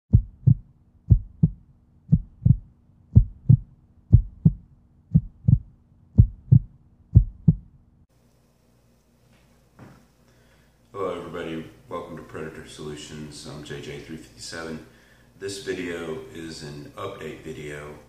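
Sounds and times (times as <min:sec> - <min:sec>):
heartbeat thumps: 0:00.1 - 0:07.7.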